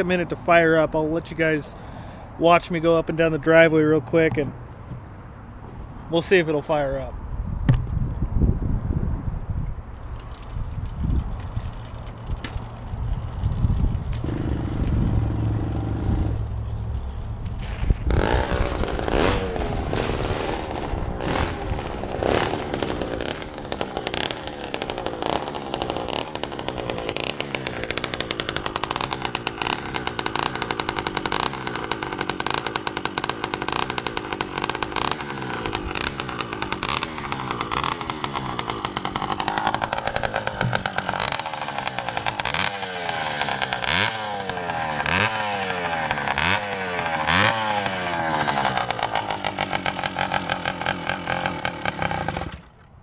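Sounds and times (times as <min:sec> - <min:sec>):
two-stroke engine revving: 0:11.6 - 0:52.7.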